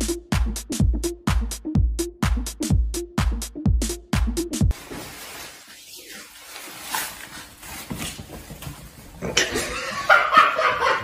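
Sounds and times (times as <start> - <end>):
plastic bag rustling: 4.7 - 9.4.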